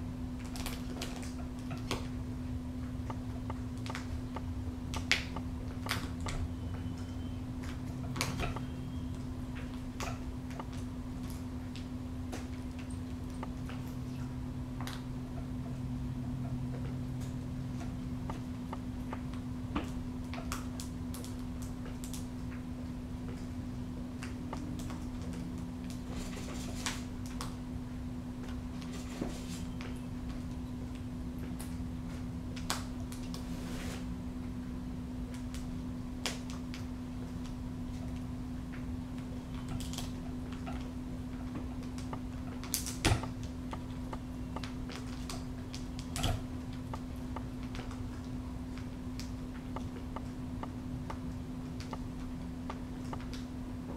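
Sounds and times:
steady low hum: 0.0s - 53.9s
crackle: 16.8s - 27.7s, 35.2s - 53.9s.

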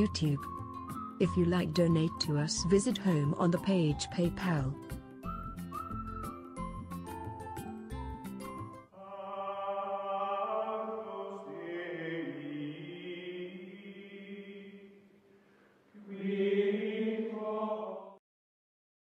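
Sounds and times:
choir-like chanting voices: 9.0s - 15.0s, 16.0s - 18.2s.

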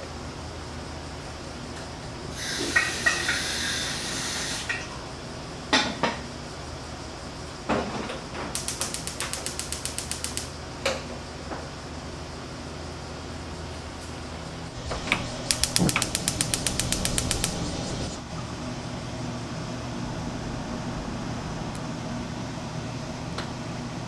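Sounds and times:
hiss: 2.3s - 4.9s, 8.6s - 10.6s, 14.7s - 18.2s
small mechanical clicks: 8.6s - 10.5s, 14.9s - 17.7s.

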